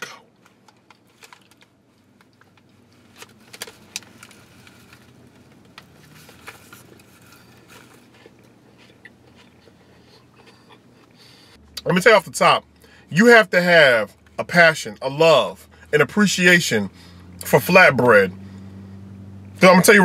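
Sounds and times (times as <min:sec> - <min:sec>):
faint chewing: 0:00.0 - 0:11.8
paper wrapper crinkling: 0:00.4 - 0:08.4.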